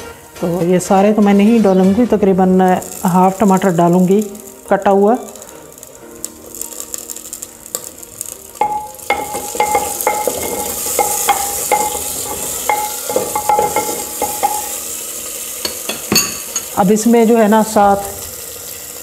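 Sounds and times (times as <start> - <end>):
onions sizzling in hot oil: 0.0 - 19.0.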